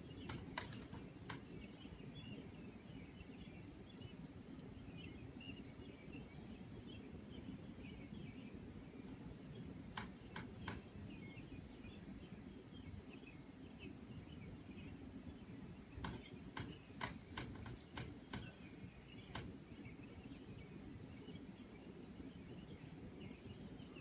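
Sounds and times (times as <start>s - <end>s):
steady low hum: 0.0s - 24.0s.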